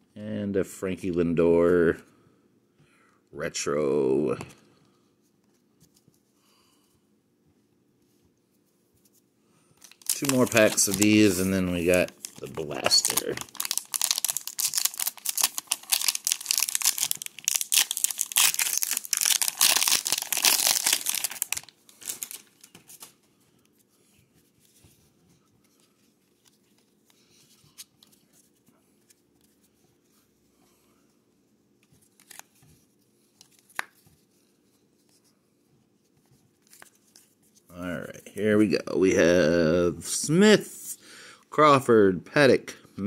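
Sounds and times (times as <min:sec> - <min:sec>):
plastic wrapper tearing and crinkling: 0:09.8 - 0:23.1, 0:32.2 - 0:32.5.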